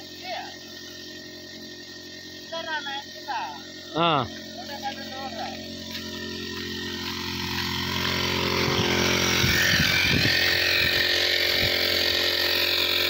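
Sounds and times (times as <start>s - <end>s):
spray hissing from hose: 0.0s - 7.7s
power sprayer pump engine running: 0.0s - 13.0s.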